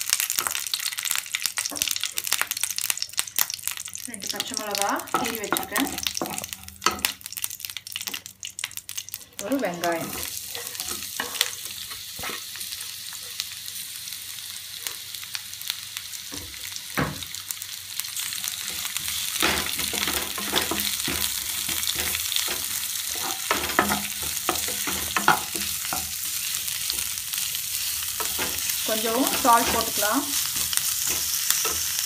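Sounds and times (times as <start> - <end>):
onions sizzling in oil: 0.0 - 32.0
wooden spatula scraping a pan: 28.2 - 31.9.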